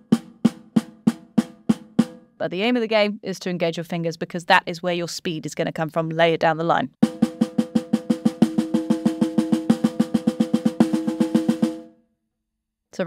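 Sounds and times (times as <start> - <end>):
snare drum strokes: 7.0 - 11.9.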